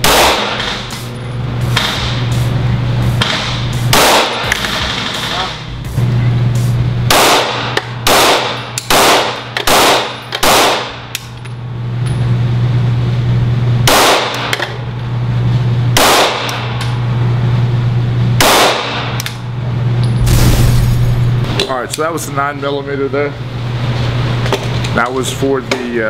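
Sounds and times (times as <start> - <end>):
pistol shots echoing: 0.0 - 0.8, 3.9 - 4.5, 7.1 - 11.0
low hum: 0.0 - 21.7.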